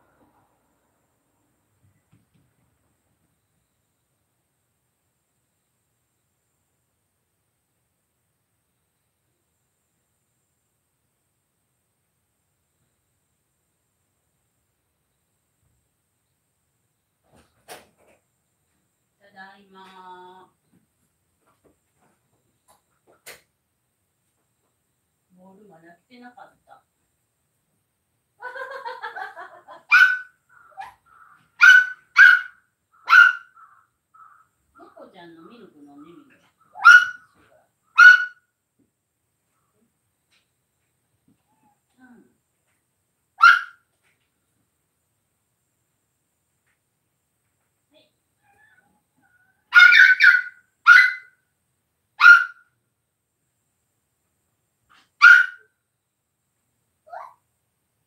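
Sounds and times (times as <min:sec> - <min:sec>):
dog barking sharply: 0:29.9 - 0:31.0, 0:31.6 - 0:33.6, 0:36.8 - 0:37.4, 0:38.0 - 0:38.4, 0:43.4 - 0:43.8, 0:49.7 - 0:51.3, 0:52.2 - 0:52.6, 0:54.9 - 0:55.7.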